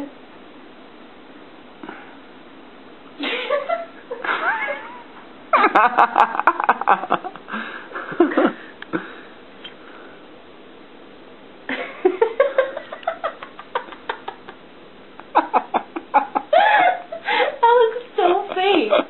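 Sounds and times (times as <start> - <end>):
cat crying: 4.3 - 5.1.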